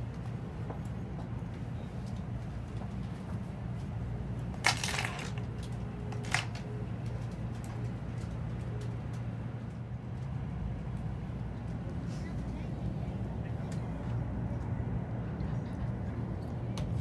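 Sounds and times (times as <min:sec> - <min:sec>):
train car low hum: 0:00.0 - 0:17.0.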